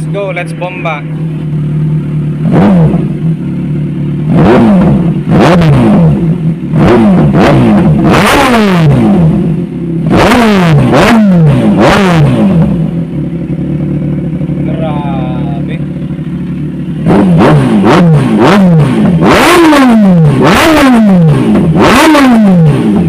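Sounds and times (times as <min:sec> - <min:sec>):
motorcycle engine revving: 0:00.0 - 0:23.0.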